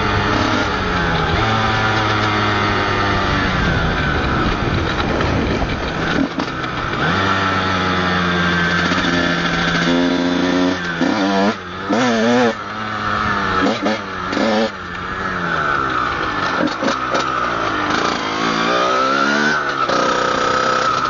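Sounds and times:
two-stroke motorcycle engine revving: 0:00.0 - 0:21.0.

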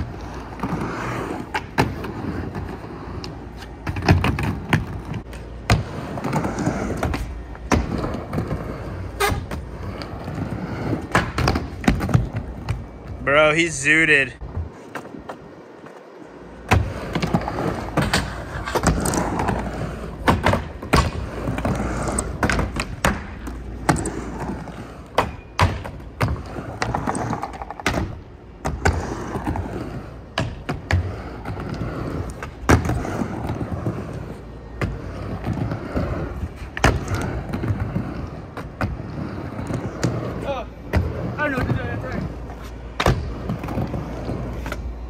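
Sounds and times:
skateboard wheels rolling on ramp: 0:00.0 - 0:45.0.

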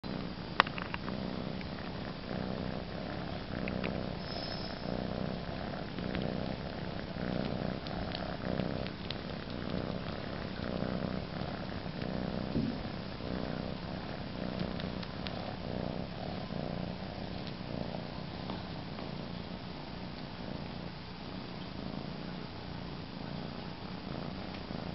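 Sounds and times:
cat purring: 0:00.0 - 0:24.9.

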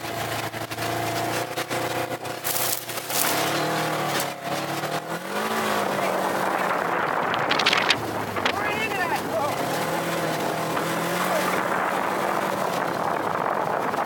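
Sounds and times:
off-road vehicle engine running: 0:00.0 - 0:14.0
knocks and rattles: 0:06.8 - 0:11.2.

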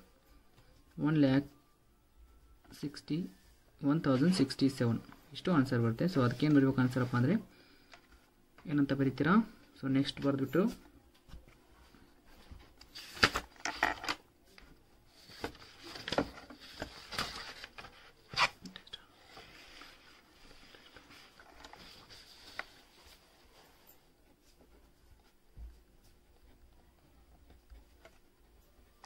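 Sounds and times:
paper pages rustling: 0:12.3 - 0:14.2, 0:15.1 - 0:18.6, 0:19.2 - 0:25.4.

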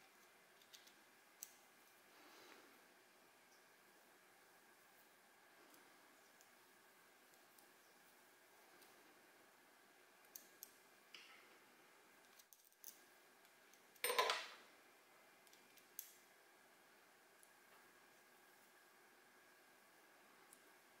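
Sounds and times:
metal parts clicking and clinking: 0:14.0 - 0:14.5.

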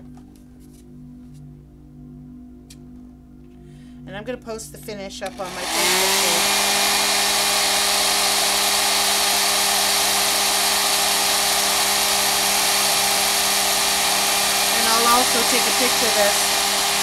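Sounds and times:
hair dryer running: 0:05.2 - 0:17.0.

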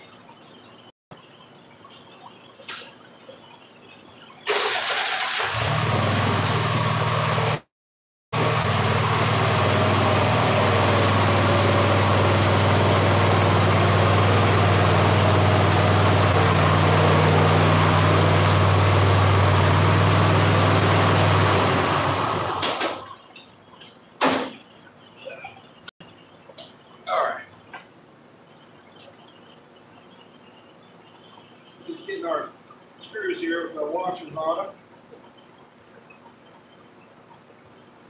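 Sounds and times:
mower engine running: 0:04.5 - 0:07.6, 0:08.4 - 0:22.9.

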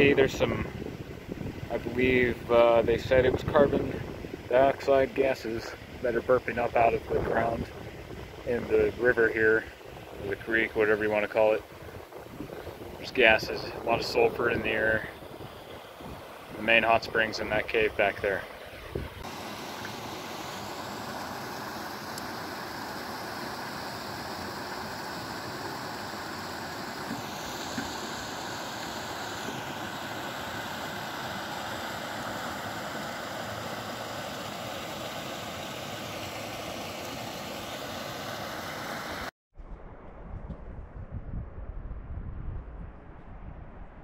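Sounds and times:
wind buffeting microphone: 0:00.0 - 0:04.8, 0:06.8 - 0:09.0, 0:11.6 - 0:17.2, 0:18.8 - 0:19.2, 0:39.6 - 0:44.0
creek water rushing over rocks: 0:15.1 - 0:39.3.

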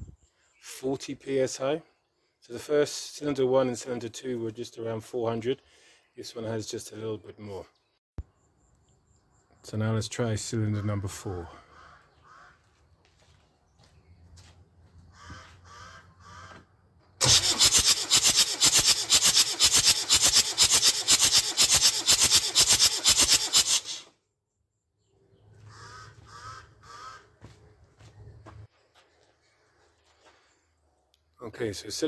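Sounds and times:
diesel engine cranking on starter: 0:17.2 - 0:24.1.

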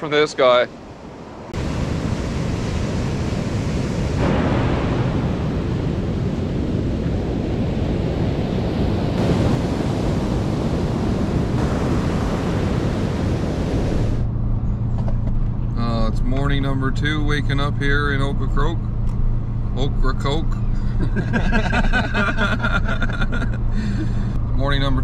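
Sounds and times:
wind on microphone: 0:01.4 - 0:15.8
surf washing onto a beach: 0:01.6 - 0:14.2
car engine hum inside cabin: 0:12.6 - 0:25.0.

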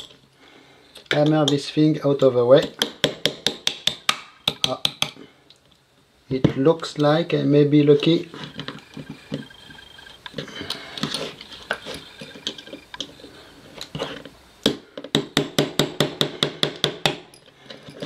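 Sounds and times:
metal scraping: 0:08.0 - 0:14.3.

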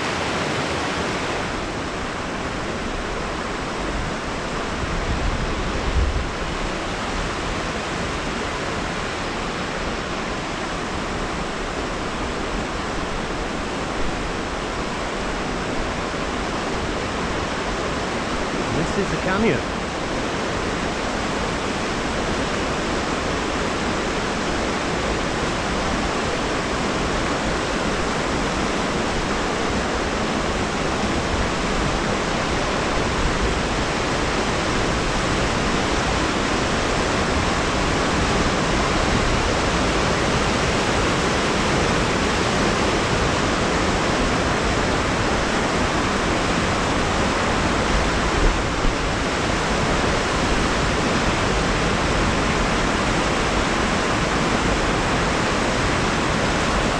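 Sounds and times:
river water rushing: 0:00.0 - 0:56.9.

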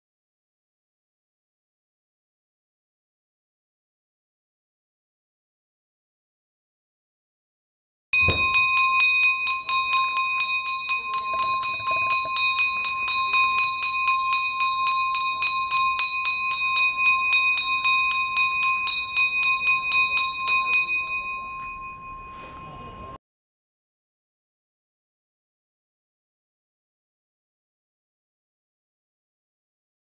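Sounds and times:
brass bell rung rapidly: 0:08.2 - 0:22.8.

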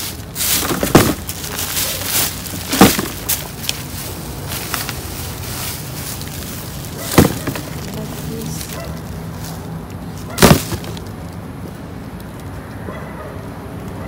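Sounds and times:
plastic bags rustling: 0:00.0 - 0:11.1
loud sharp knocks: 0:02.6 - 0:03.4, 0:07.1 - 0:07.9, 0:10.4 - 0:11.0.

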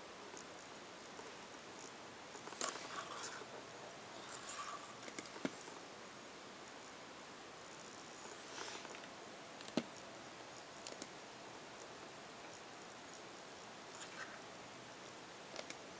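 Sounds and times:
faint steady hiss: 0:00.0 - 0:15.9
small clicks: 0:10.8 - 0:11.2, 0:15.5 - 0:15.9.

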